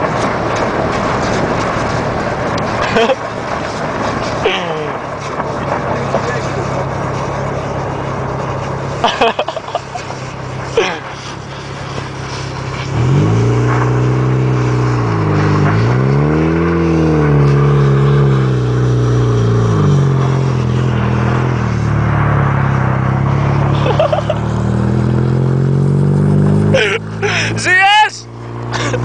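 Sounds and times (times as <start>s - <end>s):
car engine accelerating: 0.0s - 29.0s
road noise: 0.0s - 29.0s
wind: 0.0s - 29.0s.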